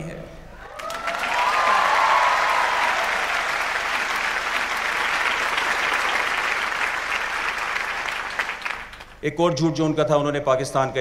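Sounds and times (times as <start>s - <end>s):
audience applauding: 0.7s - 9.2s.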